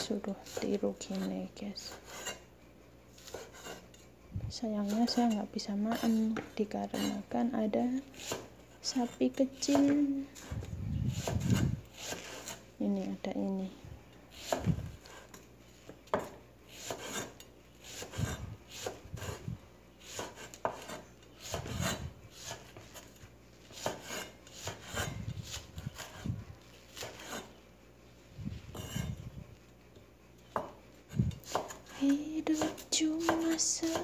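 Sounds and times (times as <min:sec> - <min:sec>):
cleaver chopping on wooden board: 0:16.1 - 0:17.3, 0:20.1 - 0:22.7, 0:23.8 - 0:26.2, 0:31.5 - 0:31.8.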